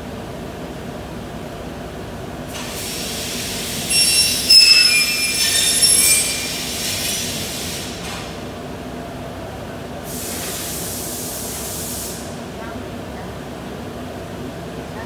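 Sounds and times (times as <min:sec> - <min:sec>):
glass cutter screeching on glass: 0:03.9 - 0:06.7.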